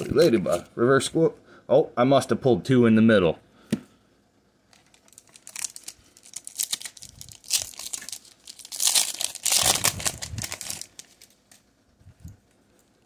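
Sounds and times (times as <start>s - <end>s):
foil wrapper crinkling: 4.7s - 11.7s
foil pack tearing open: 4.8s - 11.4s.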